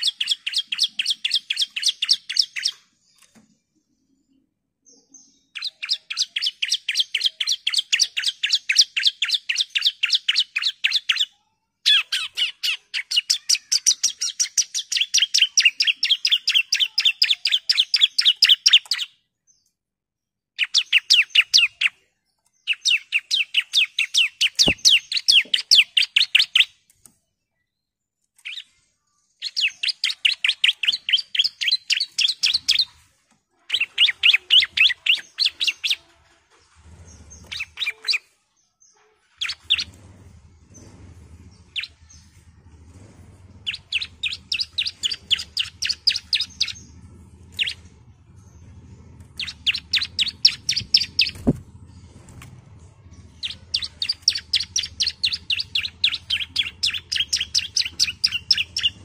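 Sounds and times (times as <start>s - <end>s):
bird calling in rapid trills: 11.9s - 19.1s, 29.4s - 33.0s, 33.6s - 36.4s, 39.3s - 40.0s, 43.6s - 48.0s, 49.3s - 51.6s, 53.2s - 59.0s.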